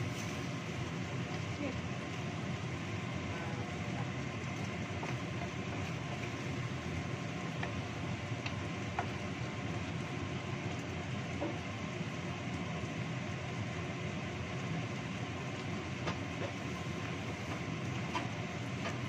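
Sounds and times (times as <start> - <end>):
sauce simmering: 0.0 - 19.0
wooden spatula knocking on wok: 7.5 - 9.2.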